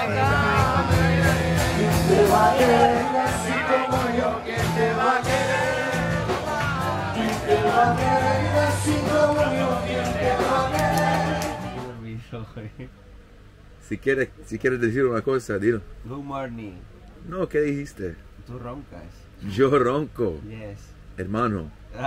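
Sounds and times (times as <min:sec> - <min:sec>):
loud party music with singing: 0:00.0 - 0:12.0.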